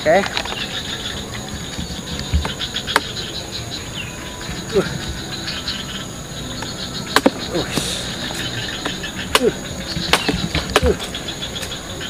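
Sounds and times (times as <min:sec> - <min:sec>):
insects buzzing: 0:00.0 - 0:12.0
blade chopping coconut husk: 0:06.6 - 0:11.1.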